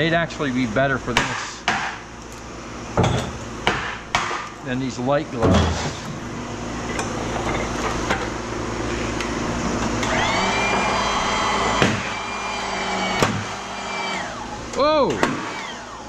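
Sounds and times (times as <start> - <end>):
high machine whine: 4.6 - 16.0
motor-driven press humming: 5.3 - 16.0.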